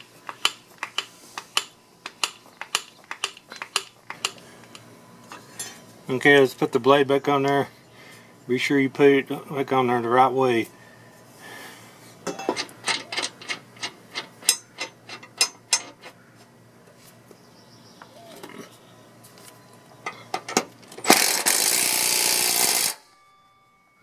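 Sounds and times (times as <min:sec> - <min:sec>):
metal clinks and knocks: 0:12.2 - 0:16.1
impact wrench running: 0:21.0 - 0:23.1.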